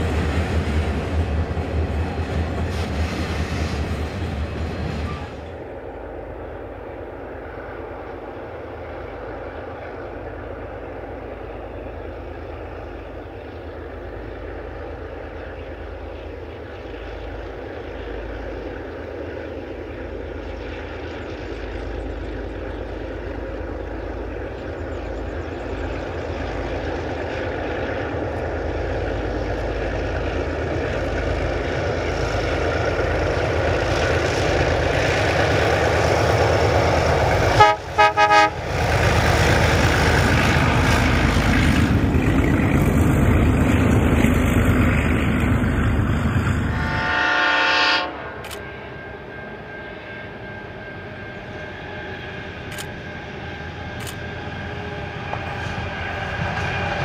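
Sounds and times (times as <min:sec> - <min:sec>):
diesel locomotive engines: 0:00.0 - 0:57.0
train horn toot: 0:37.5 - 0:38.8, 0:46.5 - 0:50.6.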